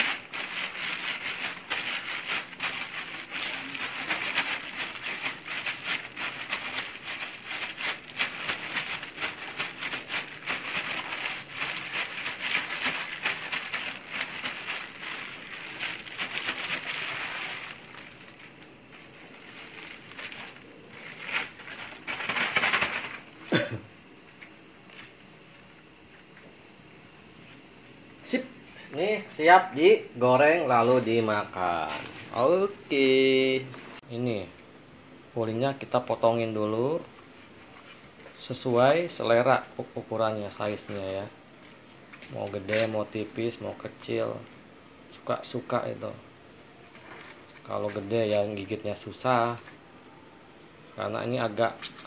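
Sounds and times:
plastic sheet crinkling: 0.0s - 23.4s, 40.5s - 43.6s, 46.9s - 49.8s.

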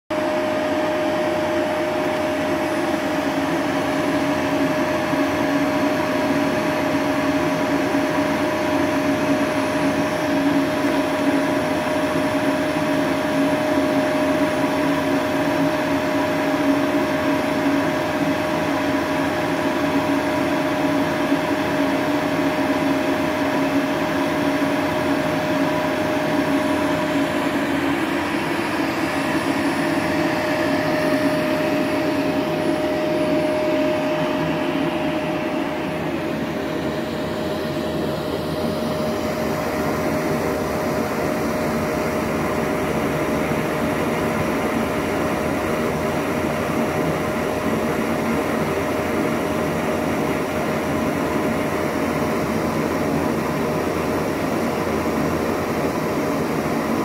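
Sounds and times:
vacuum cleaner running: 0.1s - 57.0s.

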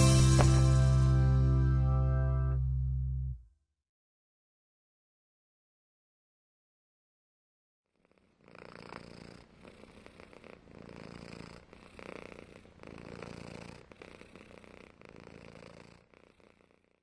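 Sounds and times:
cat purring: 7.9s - 17.0s.

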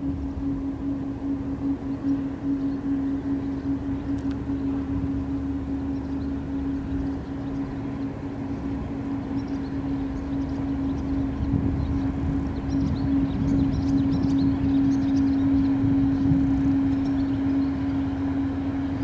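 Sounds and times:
diesel engine droning: 0.0s - 19.0s.

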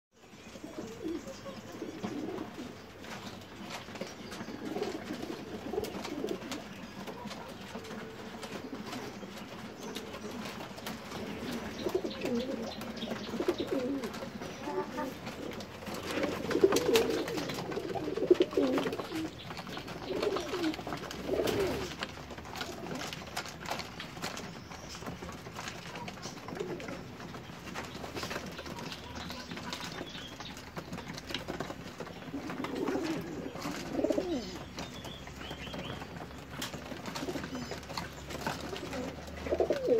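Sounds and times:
pigeons cooing: 0.2s - 39.9s.

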